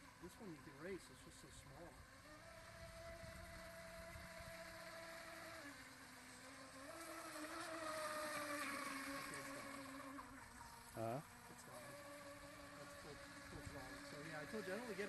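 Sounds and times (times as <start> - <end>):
model boat motor whine: 0.0 - 15.0.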